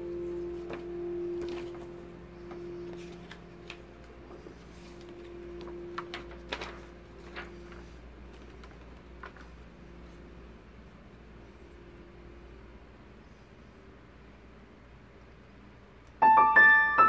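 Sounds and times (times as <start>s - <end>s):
paper rustling and tapping: 0.6s - 9.6s.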